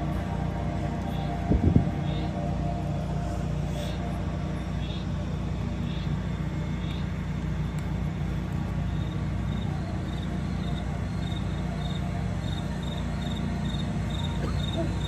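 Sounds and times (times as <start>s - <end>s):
low outdoor rumble: 0.0s - 15.0s
cricket chirping: 3.8s - 8.0s, 8.7s - 15.0s.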